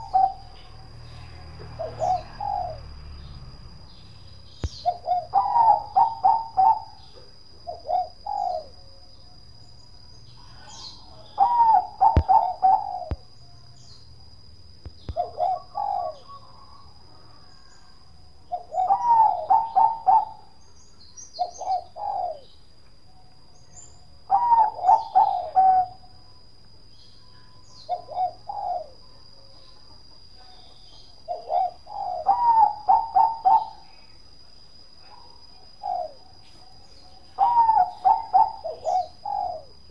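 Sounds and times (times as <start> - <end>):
dove cooing: 0.0 - 3.0, 4.6 - 8.8, 10.4 - 13.3, 15.0 - 16.9, 18.5 - 20.6, 21.4 - 22.5, 24.2 - 26.2, 27.8 - 34.2, 35.0 - 39.9
faint high-pitched tone: 26.0 - 27.9.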